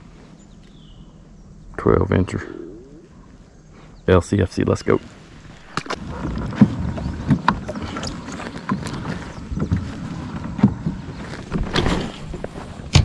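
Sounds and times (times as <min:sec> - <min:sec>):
wind rumble on microphone: 0:05.0 - 0:13.0.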